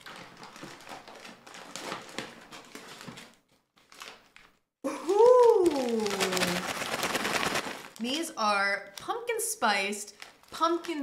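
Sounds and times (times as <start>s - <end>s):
paper and plastic bags rustling: 0.0s - 4.6s, 5.4s - 8.3s, 9.7s - 11.0s
woman saying ooh: 4.9s - 6.6s.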